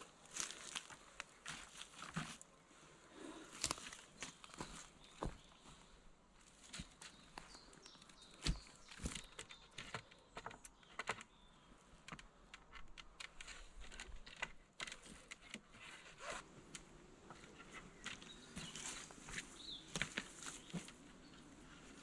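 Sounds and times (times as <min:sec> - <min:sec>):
footsteps on wood chips: 0:00.2 - 0:02.4, 0:03.5 - 0:05.8, 0:17.4 - 0:22.0.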